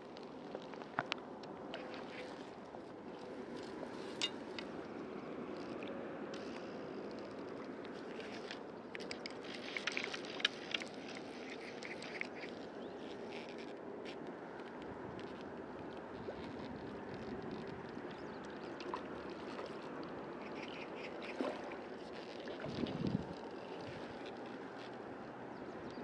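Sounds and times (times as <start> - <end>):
small clicks and scrapes: 0.1 - 2.6, 3.2 - 26.0
wind on microphone: 22.6 - 24.0.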